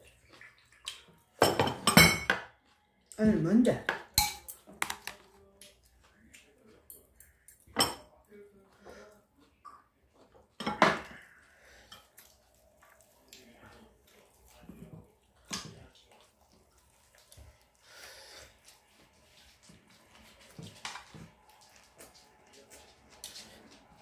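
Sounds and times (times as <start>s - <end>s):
cutlery clinking against dishes: 0.9s - 2.6s, 3.8s - 5.2s, 6.8s - 8.2s, 10.6s - 11.2s.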